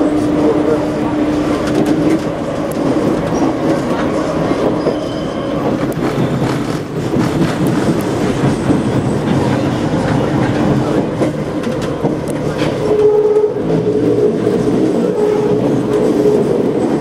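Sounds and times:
train rumbling through tunnel: 0.0s - 17.0s
wheels clicking over rail joints: 1.5s - 16.2s.

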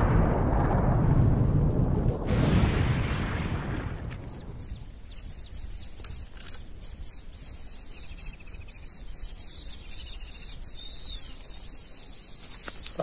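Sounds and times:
small birds chirping: 3.7s - 13.0s
bird trill: 4.1s - 13.0s.

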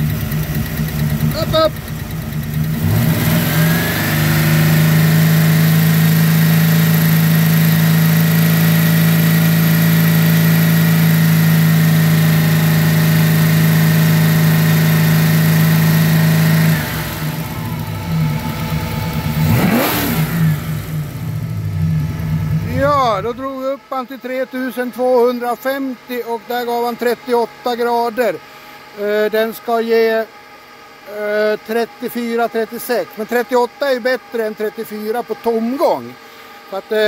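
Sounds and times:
car engine revving: 0.0s - 23.5s.

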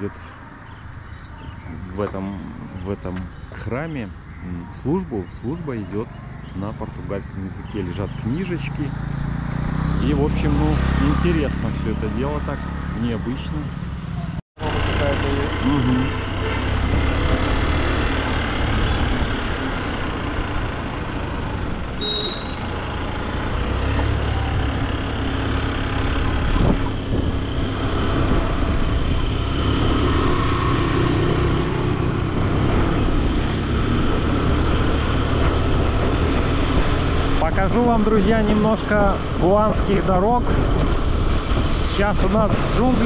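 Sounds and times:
road noise: 0.0s - 43.0s
wind rush over microphone: 26.3s - 37.7s.

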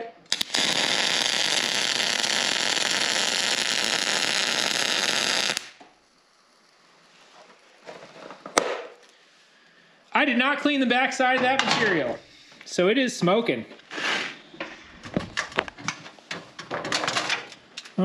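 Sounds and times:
welding arc crackling hiss: 0.0s - 8.4s.

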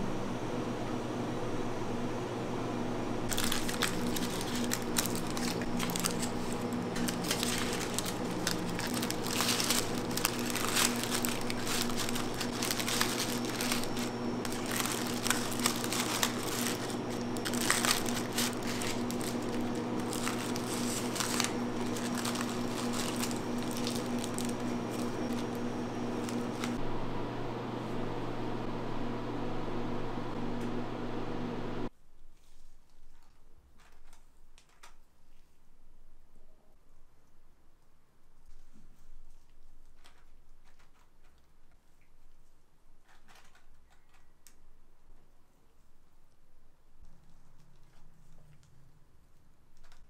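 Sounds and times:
low machine hum: 0.0s - 31.9s
crinkling handling noise: 3.3s - 26.8s, 32.2s - 35.7s, 38.4s - 44.7s, 45.8s - 50.0s.

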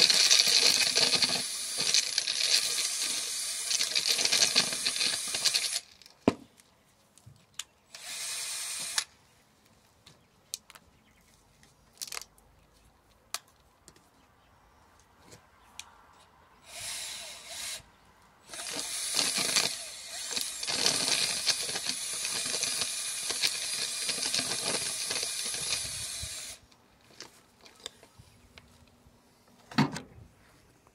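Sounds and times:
cordless drill spinning: 0.0s - 5.9s, 7.9s - 9.1s, 16.6s - 17.8s, 18.4s - 26.7s
corn kernels rattling: 0.0s - 6.0s.

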